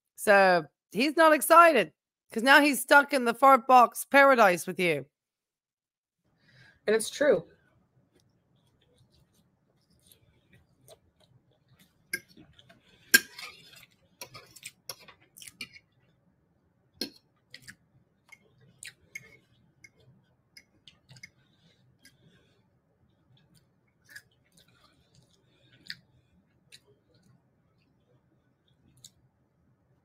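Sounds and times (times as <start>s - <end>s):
fork clinking and scraping on plate: 12.2s - 15.8s.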